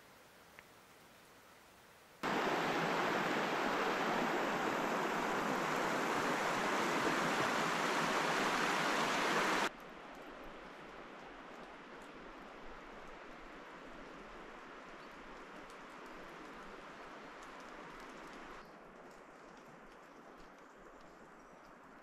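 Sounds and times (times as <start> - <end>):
faint forest hush: 0.0 - 10.6
river water rushing over rocks: 2.2 - 9.7.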